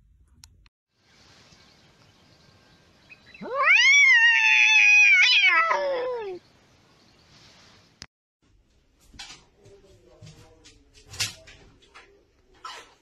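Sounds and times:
cat yowling: 0:03.4 - 0:06.4.

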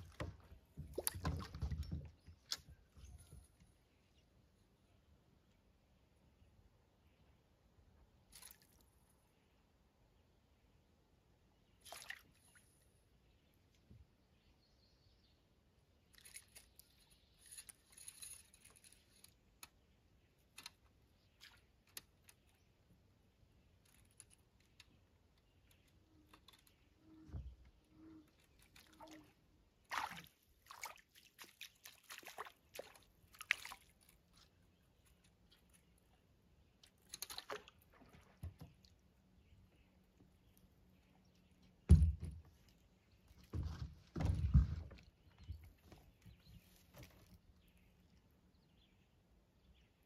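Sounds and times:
water sloshing: 0:00.0 - 0:03.0, 0:26.6 - 0:36.1.

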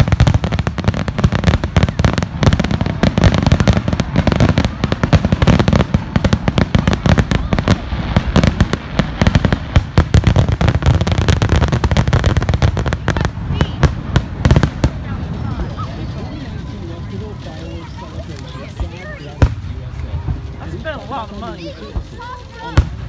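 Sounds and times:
fireworks bursting: 0:00.0 - 0:23.0.

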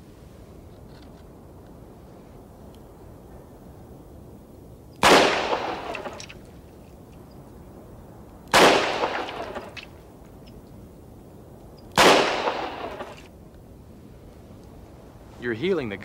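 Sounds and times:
revolver shots with echo: 0:05.0 - 0:06.3, 0:08.6 - 0:09.8, 0:12.0 - 0:13.2.

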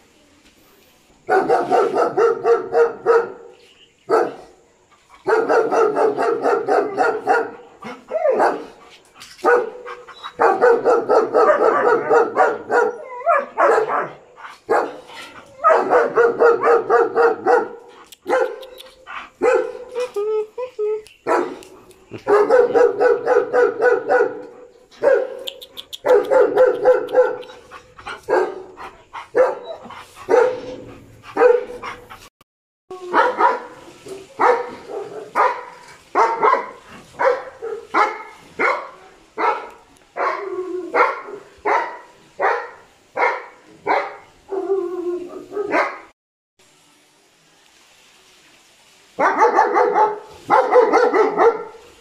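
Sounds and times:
dogs barking: 0:01.3 - 0:03.5, 0:05.2 - 0:08.8, 0:09.4 - 0:19.9, 0:21.2 - 0:32.1, 0:33.1 - 0:44.3, 0:45.4 - 0:46.1, 0:49.2 - 0:51.8.

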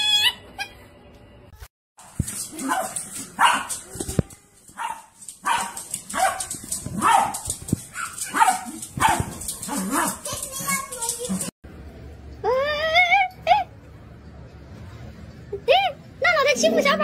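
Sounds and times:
small dog barking: 0:02.6 - 0:03.8, 0:04.8 - 0:10.3.

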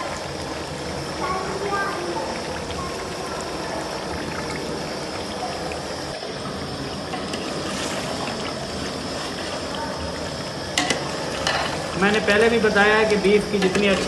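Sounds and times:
meat sizzling in hot oil: 0:10.3 - 0:14.0
ladle stirring in pot: 0:10.8 - 0:12.6.

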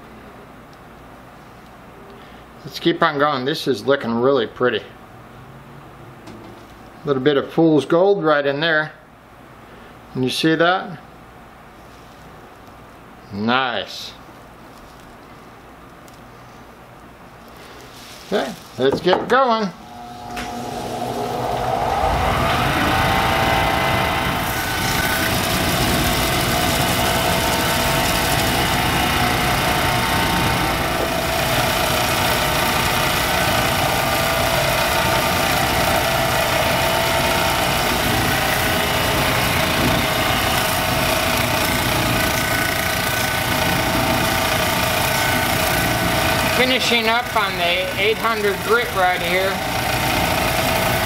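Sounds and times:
electric motor humming: 0:19.7 - 0:51.0.

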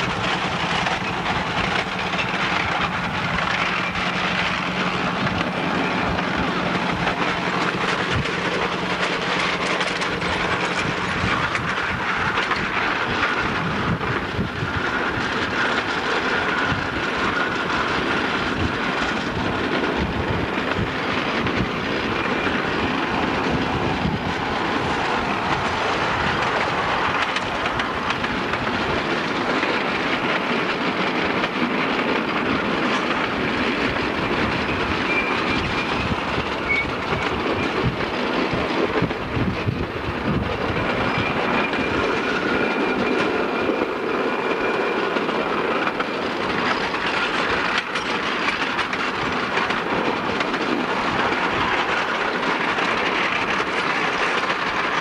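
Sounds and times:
train wheels clattering over rails: 0:00.0 - 0:55.0
high wheel squeals: 0:34.6 - 0:37.8, 0:41.0 - 0:45.1.

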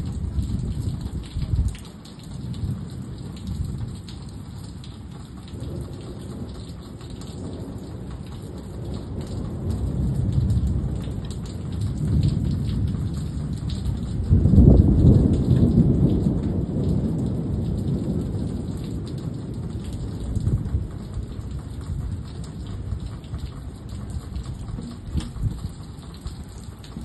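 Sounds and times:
rain falling: 0:00.0 - 0:27.0
drops ticking close by: 0:19.5 - 0:27.0.

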